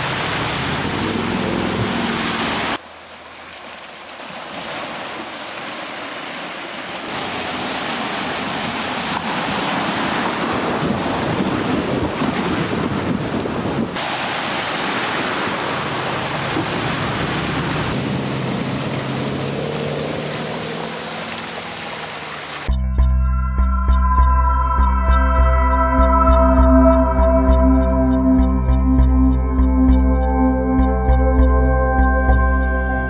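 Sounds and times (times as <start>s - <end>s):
water surging and splashing: 0.0s - 22.7s
car engine: 15.3s - 22.7s.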